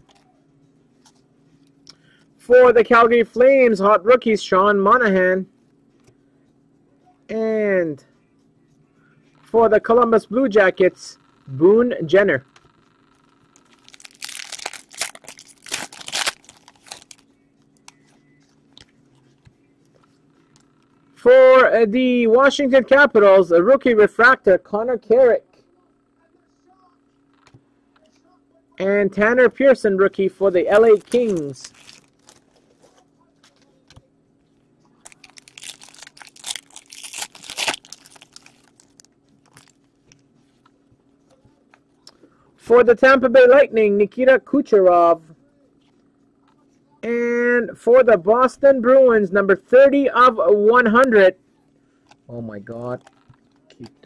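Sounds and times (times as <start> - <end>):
foil wrapper crinkling and tearing: 13.6 - 17.2, 30.7 - 32.6, 35.0 - 39.9.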